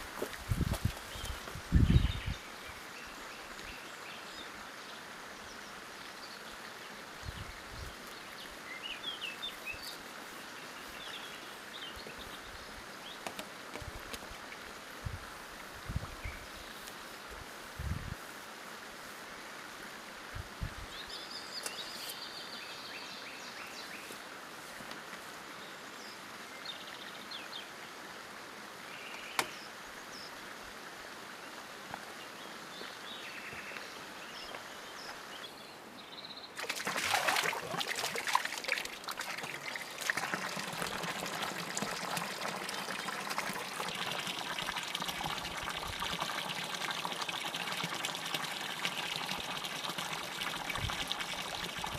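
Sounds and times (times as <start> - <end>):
fountain water splashing into basin: 36.6 - 51.9.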